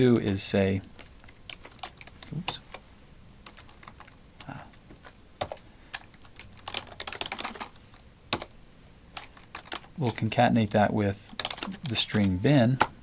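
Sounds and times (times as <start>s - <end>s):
computer keyboard typing: 0.9s - 2.8s, 3.4s - 8.5s, 9.1s - 10.4s, 11.3s - 13.0s.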